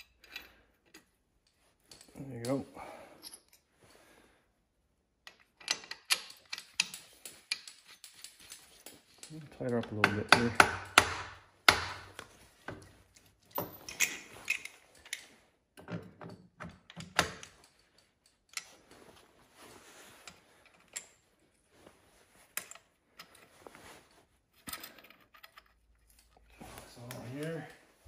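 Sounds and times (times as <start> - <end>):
light metal clinks and knocks: 0.0 - 4.0, 5.2 - 10.2, 12.6 - 19.2.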